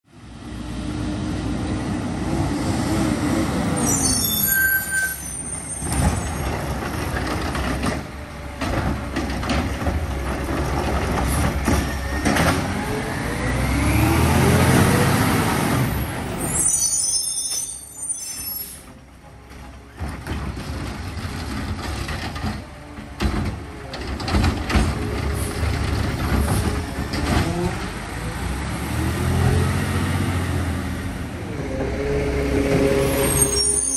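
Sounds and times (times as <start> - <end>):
diesel truck engine revving: 10.1 - 16.4, 24.9 - 33.3.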